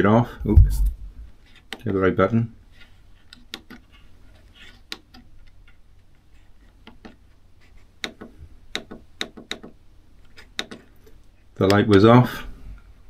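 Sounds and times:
faint low hum: 0:00.0 - 0:03.4.

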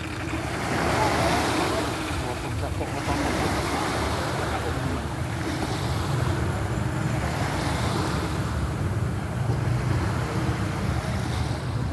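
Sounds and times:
small waves on shore: 0:00.0 - 0:11.9
wind rumbling on microphone: 0:00.0 - 0:11.9.

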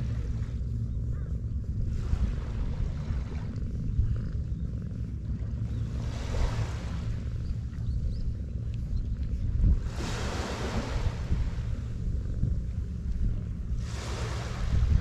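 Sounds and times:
wind rumble on microphone: 0:00.0 - 0:15.0
small waves washing on sand: 0:05.8 - 0:07.4, 0:09.7 - 0:12.0, 0:13.7 - 0:15.0.

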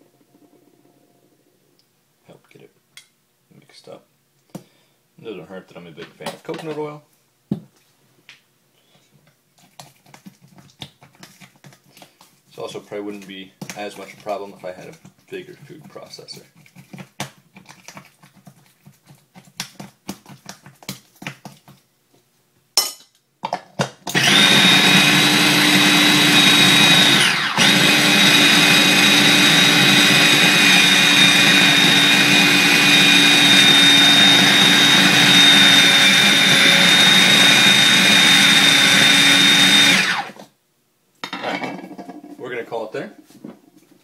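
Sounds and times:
food processor motor whining: 0:24.1 - 0:40.5.

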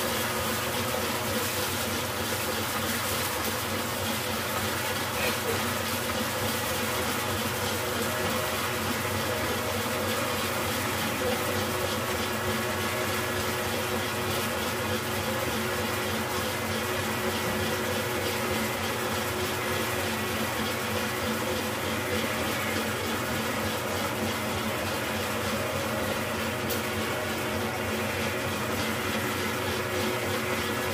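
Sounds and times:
stand mixer whirring: 0:00.0 - 0:30.9.

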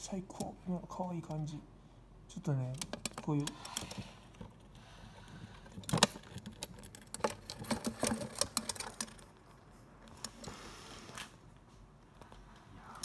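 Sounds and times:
mole claws scratching plastic: 0:02.6 - 0:10.5.

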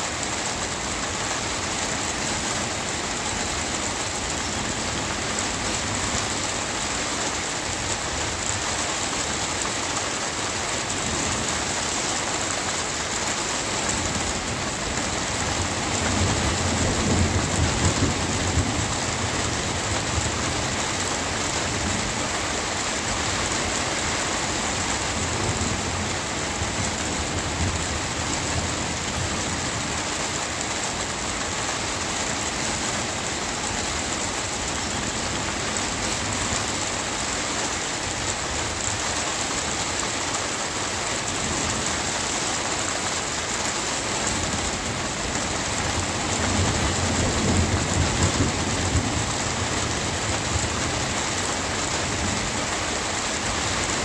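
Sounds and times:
steady rain falling: 0:00.0 - 0:54.0
low rumble of thunder: 0:13.9 - 0:22.8, 0:44.3 - 0:52.8.

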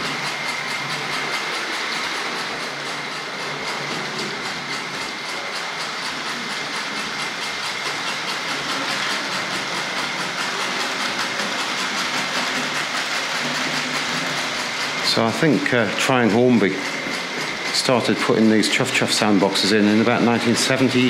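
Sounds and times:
high motor whine: 0:00.0 - 0:21.0
model steam locomotive chuffing: 0:00.0 - 0:21.0
wheels rattling on rail: 0:00.0 - 0:21.0.

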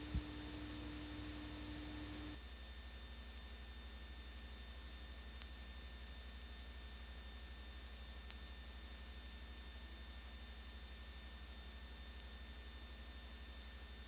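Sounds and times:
thin high whine: 0:00.0 - 0:02.4
electrical hum and hiss: 0:00.0 - 0:14.0.

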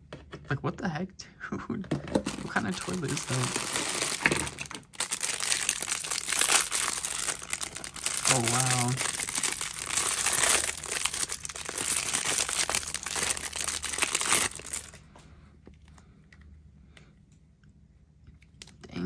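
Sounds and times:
plastic wrapper crinkling: 0:02.2 - 0:15.0.

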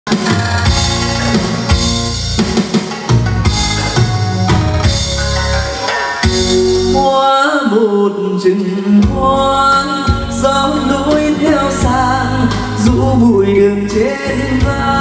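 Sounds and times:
slow ballad backing track: 0:00.1 - 0:15.0
man singing into microphone: 0:06.9 - 0:15.0.

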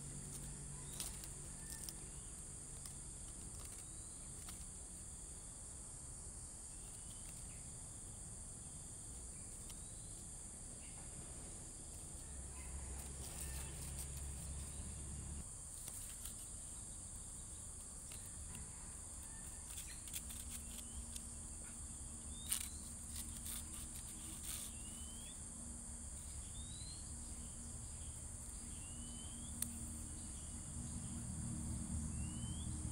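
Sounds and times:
high-pitched insect drone: 0:19.4 - 0:32.9.

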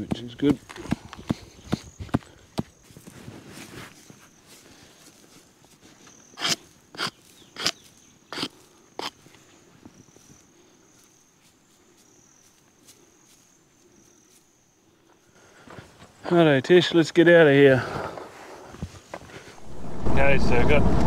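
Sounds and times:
hand brush sweeping dry soil: 0:02.8 - 0:09.1.

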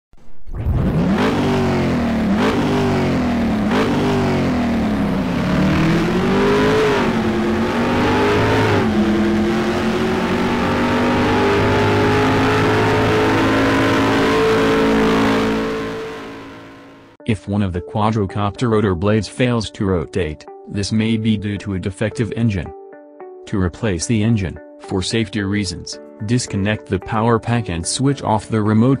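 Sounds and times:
race car engine revving: 0:00.5 - 0:17.2.

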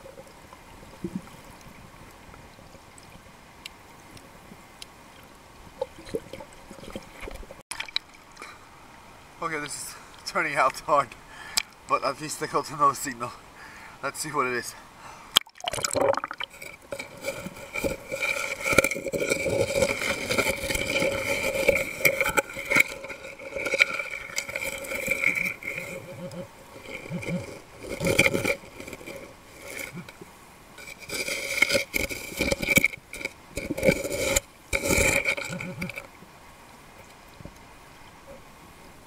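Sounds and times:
hands digging in sand underwater: 0:15.7 - 0:30.2, 0:30.8 - 0:36.0.

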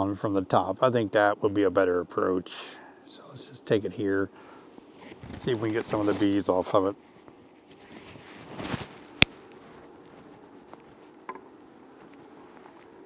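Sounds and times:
soft handling and light taps: 0:05.0 - 0:06.4, 0:07.2 - 0:13.0.

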